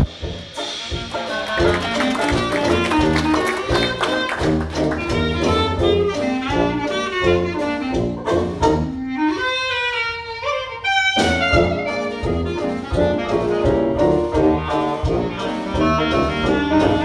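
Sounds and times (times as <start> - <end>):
jazz band playing: 0.0 - 17.0.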